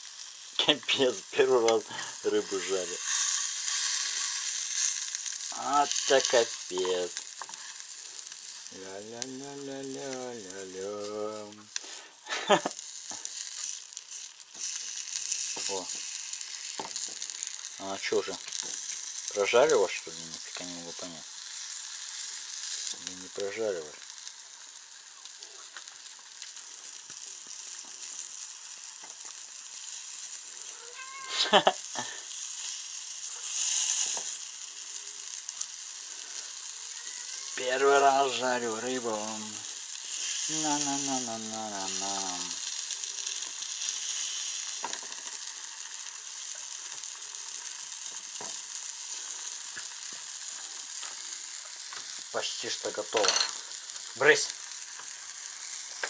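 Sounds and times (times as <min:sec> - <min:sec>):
fish sizzling in a frying pan: 0:00.0 - 0:56.0
wooden stick moving food in pan: 0:01.5 - 0:08.6.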